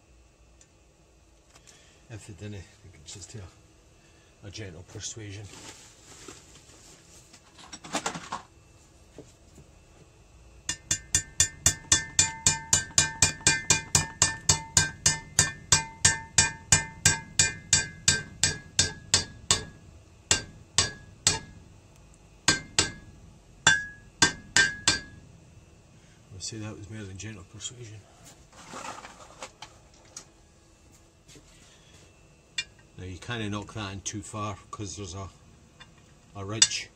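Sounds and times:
hammer striking metal: 10.7 - 21.6, 22.5 - 25.2.

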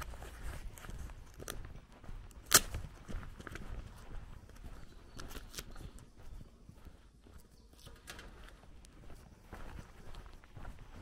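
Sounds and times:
footsteps on gravel: 0.0 - 11.0
sharp crack: 2.4 - 2.8.

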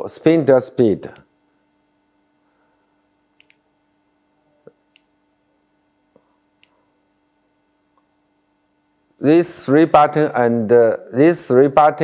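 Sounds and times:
low electrical hum: 0.0 - 12.0
computer mouse clicks: 3.4 - 3.6.

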